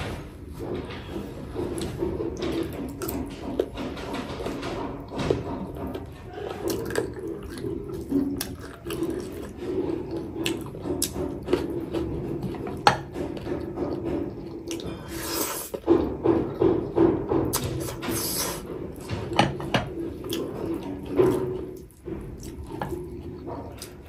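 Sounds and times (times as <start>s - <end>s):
wet chewing and lip-smacking: 6.6s - 12.8s, 20.2s - 24.0s
hissing slurp: 17.9s - 18.7s.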